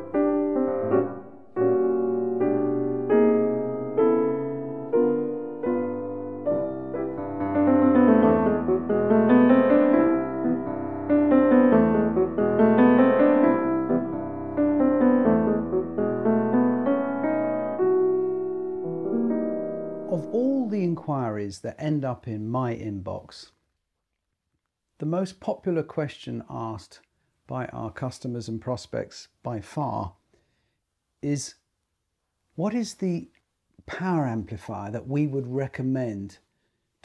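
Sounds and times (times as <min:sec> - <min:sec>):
solo piano piece: 0:00.0 - 0:20.4.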